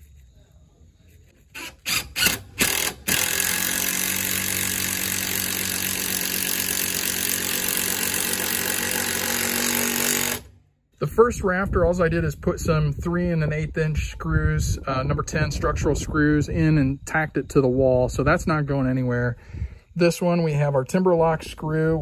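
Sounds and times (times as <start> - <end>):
cordless drill driving screw into wood: 1.5 - 10.5.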